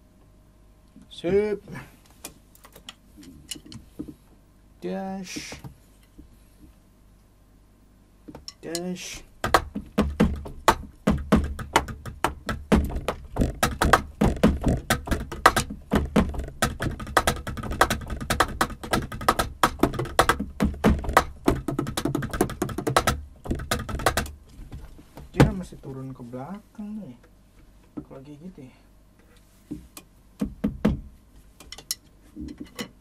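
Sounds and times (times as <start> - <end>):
sticks striking electronic drum pads: 8.3 - 24.4, 25.3 - 25.7
low kick drum thumps: 9.4 - 24.3, 25.2 - 25.8, 30.4 - 31.1.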